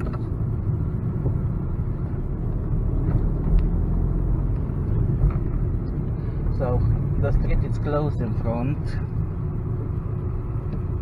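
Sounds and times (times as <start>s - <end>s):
low bumps: 0.0s - 8.2s
car engine and road noise: 0.0s - 11.0s.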